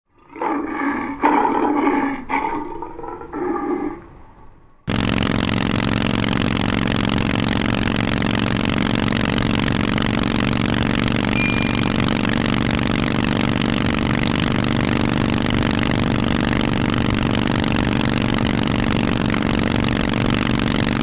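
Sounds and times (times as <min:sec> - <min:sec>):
motorcycle engine idling: 0:04.9 - 0:21.0.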